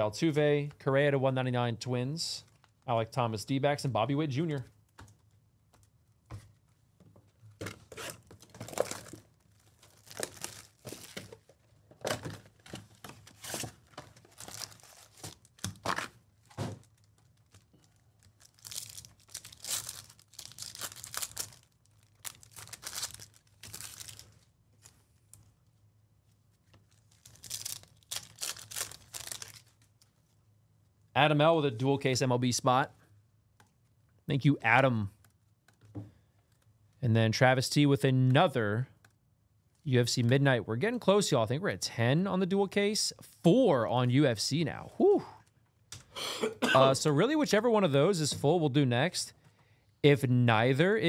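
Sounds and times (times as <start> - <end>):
wrappers tearing and crinkling: 7.9 - 11.5, 13.2 - 25.0, 26.9 - 29.9.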